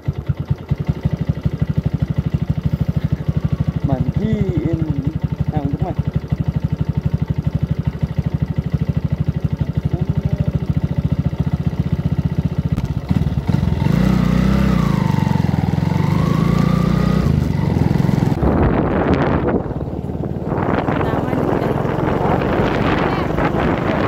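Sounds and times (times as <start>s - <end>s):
motorcycle engine running: 0.0s - 24.0s
wind on microphone: 18.2s - 24.0s.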